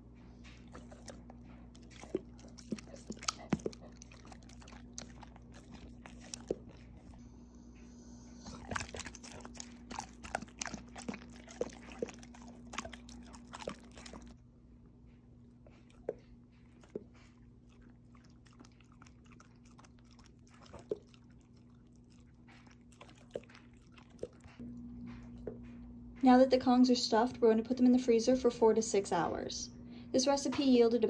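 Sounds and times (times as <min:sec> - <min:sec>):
dogs licking and smacking: 0:00.4 - 0:07.2, 0:08.4 - 0:14.4, 0:15.4 - 0:25.8.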